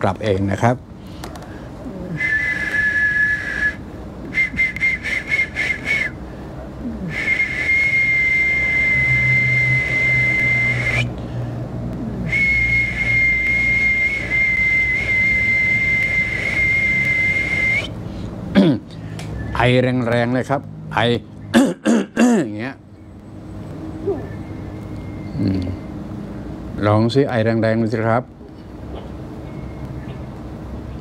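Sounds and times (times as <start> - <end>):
two-tone whistle blasts: 2.2 - 6.2, 7.2 - 11.2, 12.3 - 18.0.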